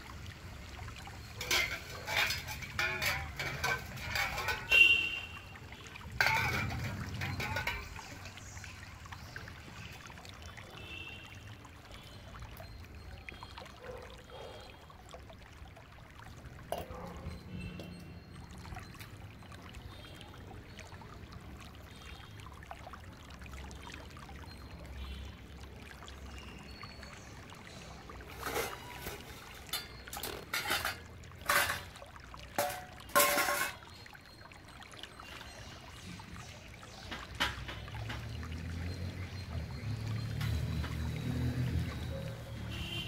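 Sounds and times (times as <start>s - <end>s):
water trickling and sloshing: 0.0s - 43.0s
metal utensils clanking: 1.3s - 5.2s, 6.1s - 8.4s, 28.3s - 33.9s.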